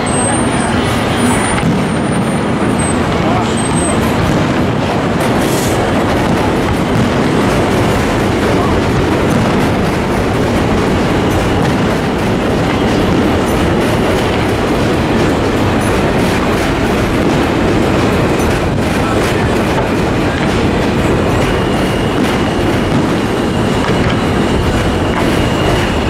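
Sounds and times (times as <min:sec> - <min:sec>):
faint high wheel squeal: 0:00.0 - 0:04.2, 0:17.5 - 0:26.0
rail cars rumbling and clattering: 0:00.0 - 0:26.0.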